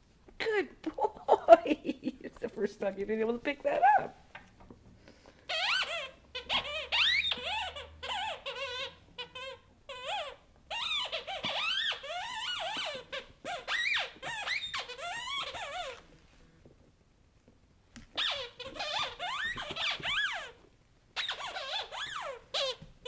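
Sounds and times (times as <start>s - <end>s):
squeaky dog toy squeaking: 5.5s - 16.1s, 18.1s - 23.0s.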